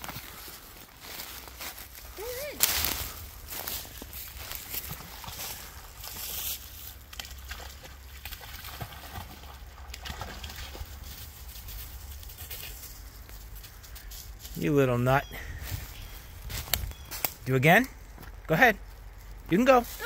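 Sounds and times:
footsteps on dry leaves: 0:00.0 - 0:07.1, 0:10.9 - 0:14.8, 0:15.6 - 0:17.4
dog splashing through water: 0:04.8 - 0:11.2.

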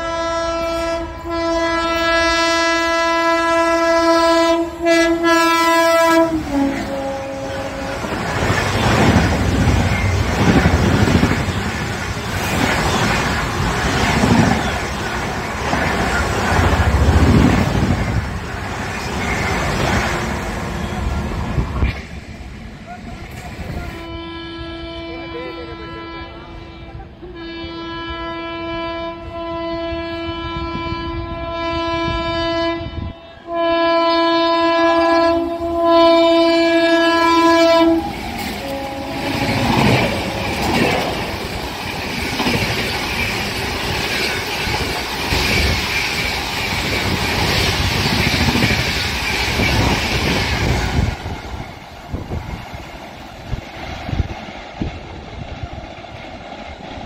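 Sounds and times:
locomotive horn blasts: 0:00.0 - 0:08.2, 0:24.0 - 0:40.8
train wheels rumbling on rails: 0:00.0 - 0:27.4, 0:28.7 - 0:57.0.

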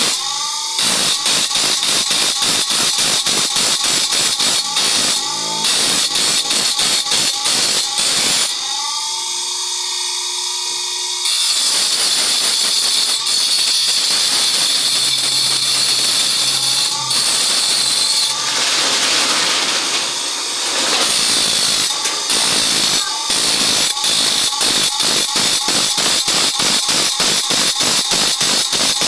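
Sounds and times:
harsh grinding of saw teeth: 0:00.0 - 0:09.0, 0:11.3 - 0:29.0
grinder wheel whine: 0:00.0 - 0:29.0.

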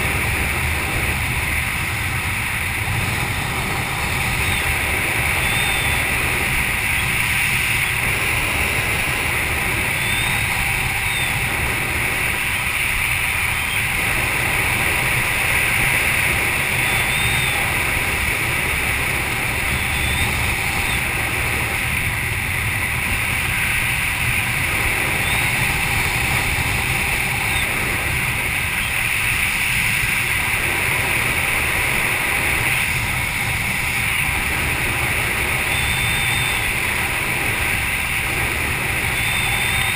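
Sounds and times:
wind rushing over camera: 0:00.0 - 0:39.9.

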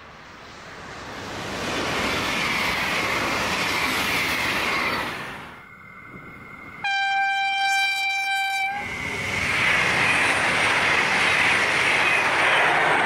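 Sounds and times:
train rushing past: 0:00.0 - 0:13.0
train horn blast: 0:06.8 - 0:08.9.

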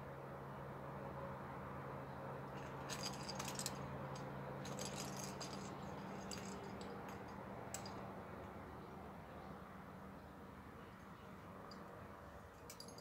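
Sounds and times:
metal climbing gear clinking: 0:02.6 - 0:08.1, 0:12.5 - 0:13.0.

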